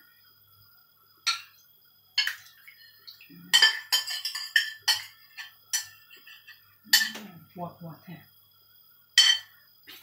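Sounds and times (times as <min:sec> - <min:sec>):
metal spoon clinking on ceramic bowl: 0:03.5 - 0:07.2, 0:09.2 - 0:09.5.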